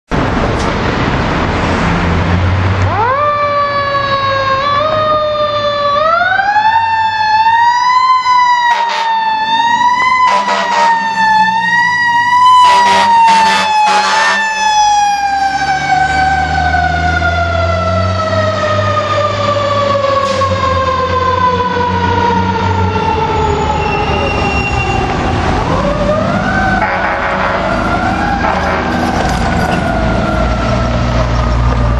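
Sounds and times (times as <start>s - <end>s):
mechanical siren wailing: 2.9s - 31.9s
air horn blasts: 8.7s - 9.2s, 10.3s - 11.0s, 12.6s - 14.5s, 26.8s - 27.8s, 28.4s - 29.2s.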